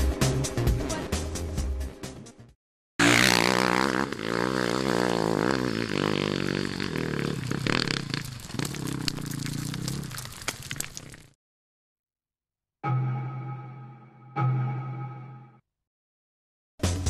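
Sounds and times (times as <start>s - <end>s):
motorcycle engine revving: 3.0s - 8.2s.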